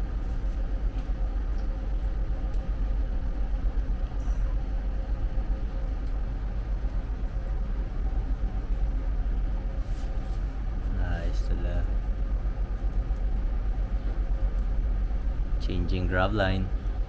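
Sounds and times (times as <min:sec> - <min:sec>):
faint steady hum: 0:00.0 - 0:17.0
ship machinery rumble: 0:00.0 - 0:17.0.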